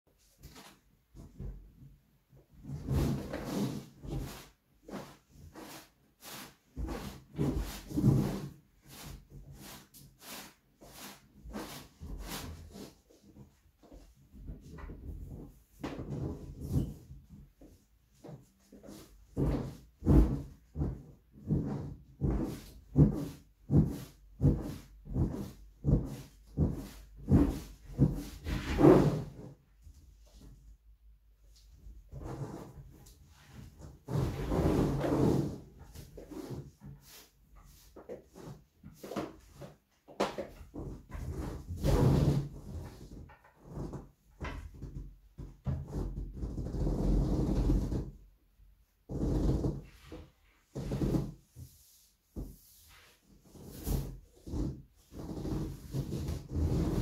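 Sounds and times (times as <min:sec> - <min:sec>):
exercise ball creaking and rubbing: 0:00.3 - 0:30.8, 0:31.5 - 0:48.3, 0:49.0 - 0:57.0
exercise ball bouncing and thudding: 0:19.2 - 0:28.6.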